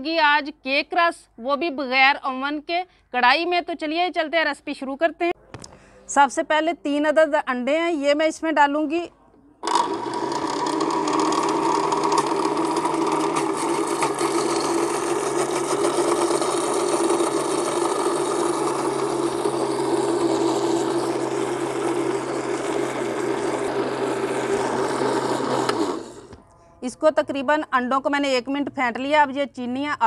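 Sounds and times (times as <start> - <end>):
electric blender running: 9.6 - 26.4.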